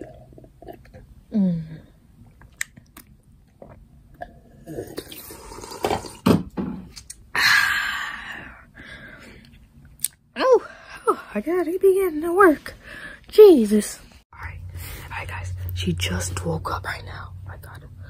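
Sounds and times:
person sipping and gulping: 0.0s - 6.3s.

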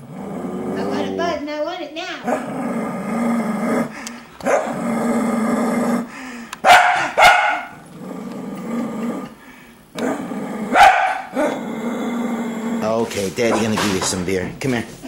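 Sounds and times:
dog growling grumble: 0.0s - 1.6s, 2.2s - 4.0s, 4.6s - 6.2s, 7.7s - 9.4s, 10.0s - 13.2s
dog barking: 4.4s - 4.8s, 6.6s - 7.8s, 10.7s - 11.6s.

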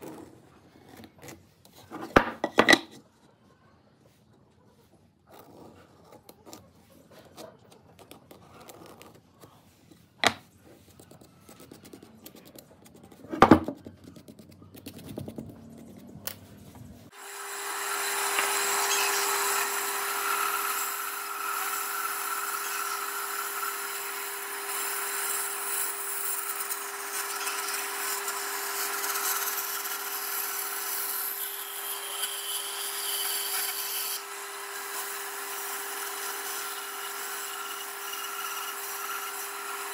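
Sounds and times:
bandsaw cutting wood: 17.1s - 39.9s.

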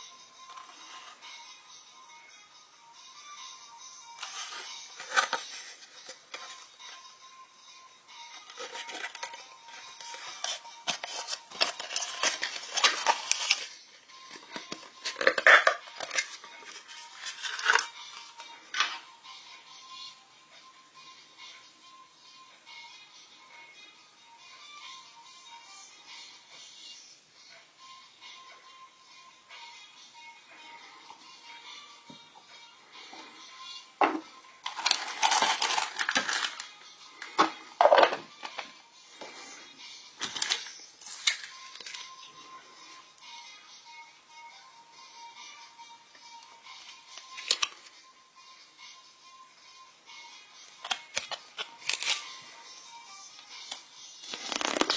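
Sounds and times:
plastic packaging rustling: 4.2s - 6.6s, 8.4s - 17.9s, 34.6s - 36.7s, 40.2s - 42.1s, 50.8s - 52.3s, 54.2s - 54.9s
plastic wrapper crinkling: 10.4s - 13.7s, 15.0s - 17.9s, 34.6s - 36.7s, 50.8s - 52.3s, 54.2s - 54.9s.

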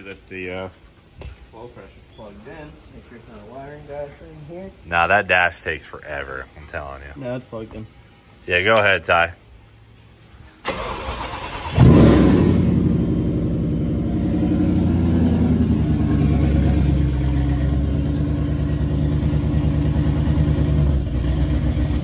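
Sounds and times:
engine cranking on starter: 10.6s - 12.7s
engine revving and idling: 10.7s - 22.0s.

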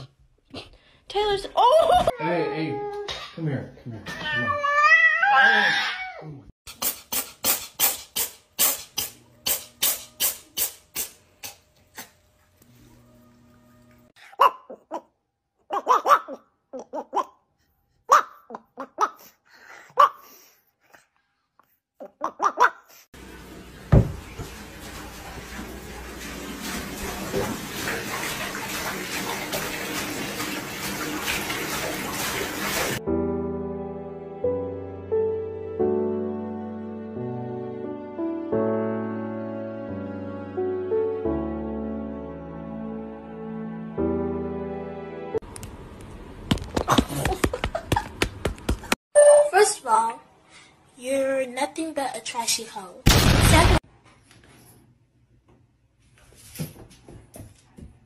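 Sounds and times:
soft music: 12.6s - 14.1s, 33.0s - 45.4s
water running into bathtub: 23.2s - 33.0s.

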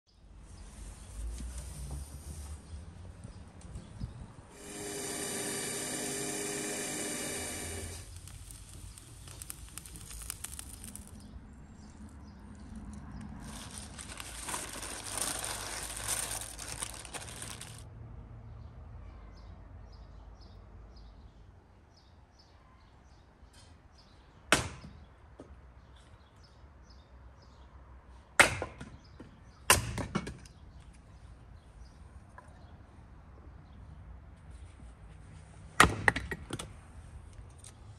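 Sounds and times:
cordless drill whining into bone: 4.5s - 8.2s.

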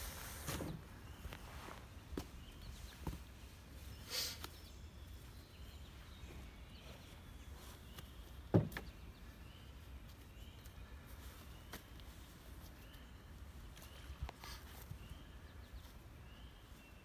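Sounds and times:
faint bird chirps: 0.5s - 17.0s
thump in a canoe: 8.5s - 8.9s.

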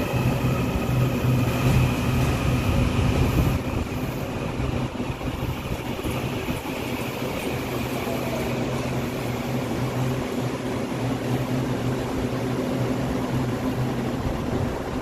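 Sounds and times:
electric train humming: 0.0s - 15.0s
train wheels rumbling: 0.0s - 15.0s.

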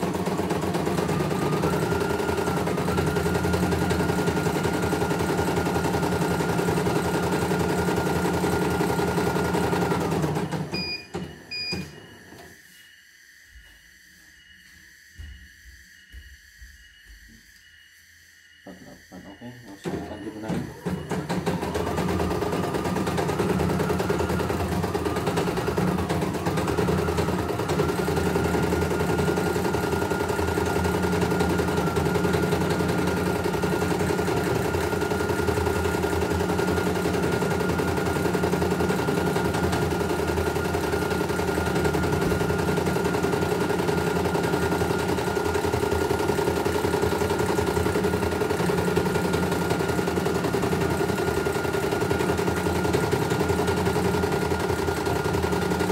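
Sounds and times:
steady high whine: 11.4s - 20.9s.

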